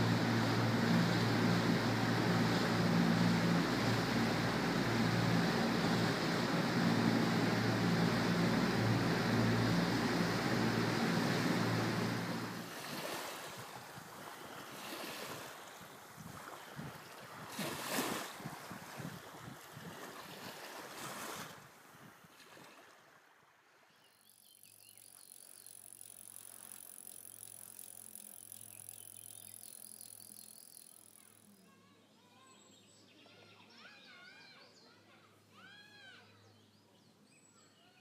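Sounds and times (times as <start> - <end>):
motorboat engine humming: 0.0 - 20.9, 24.4 - 31.6
rush of boat wake: 0.0 - 23.5.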